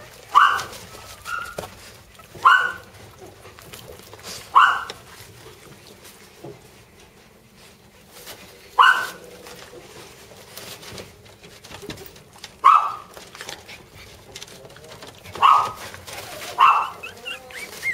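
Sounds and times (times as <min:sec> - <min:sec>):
dog barking: 0:00.3 - 0:01.6, 0:02.4 - 0:02.9, 0:04.5 - 0:05.0, 0:08.8 - 0:09.2, 0:12.6 - 0:13.1, 0:15.4 - 0:15.8, 0:16.5 - 0:17.9.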